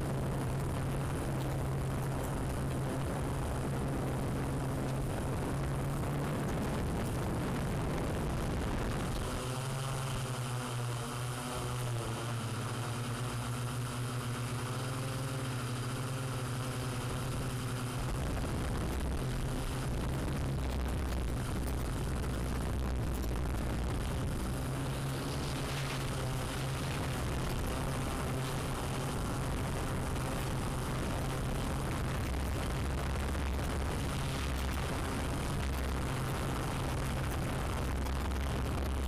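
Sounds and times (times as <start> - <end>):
drone propellers humming: 0.0 - 39.0.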